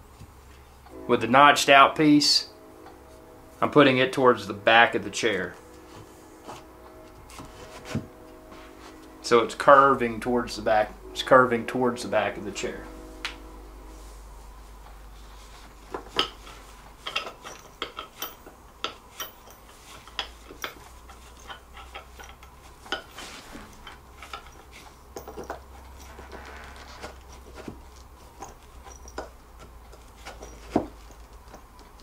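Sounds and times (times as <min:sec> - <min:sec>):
hardware clicking and clinking: 0:15.9 - 0:32.0.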